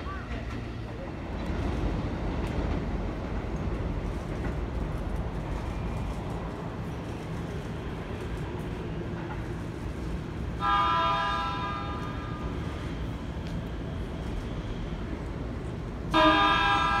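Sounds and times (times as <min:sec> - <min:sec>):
electric train horn: 0:10.6 - 0:12.5, 0:16.1 - 0:17.0.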